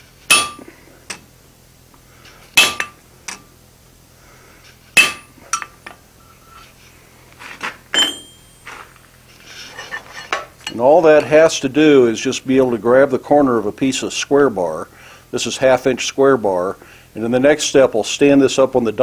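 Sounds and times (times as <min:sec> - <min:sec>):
hammer striking chisel: 0:00.3 - 0:00.7, 0:02.6 - 0:03.4, 0:05.0 - 0:05.7, 0:08.0 - 0:08.6
metallic clank on anvil: 0:00.3 - 0:01.2, 0:02.6 - 0:03.4, 0:05.0 - 0:05.8, 0:08.0 - 0:08.7.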